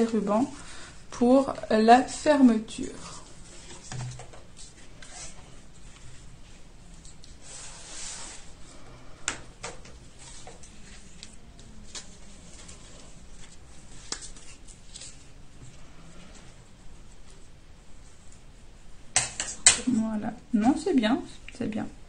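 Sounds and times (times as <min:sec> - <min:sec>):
paper rustling: 0:09.6 - 0:15.4.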